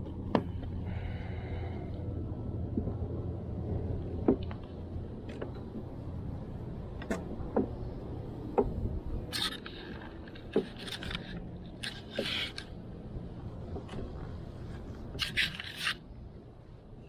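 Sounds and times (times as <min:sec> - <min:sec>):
hive tool scraping wood: 0:09.4 - 0:12.7.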